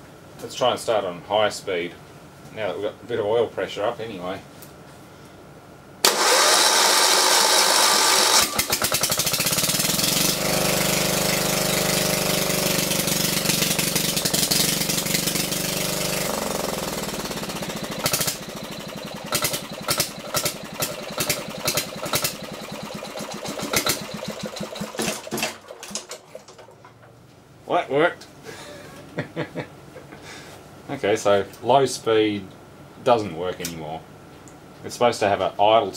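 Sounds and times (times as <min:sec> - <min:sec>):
diesel generator engine running: 0:06.0 - 0:26.8
electric starter cranking engine: 0:06.0 - 0:26.8.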